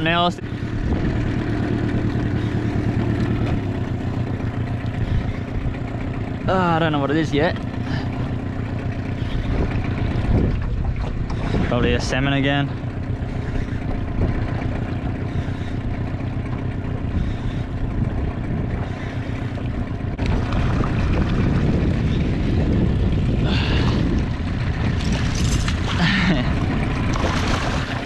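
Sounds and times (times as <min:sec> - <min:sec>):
low rumble: 0:00.0 - 0:28.0
fish splashing in water: 0:26.9 - 0:28.0.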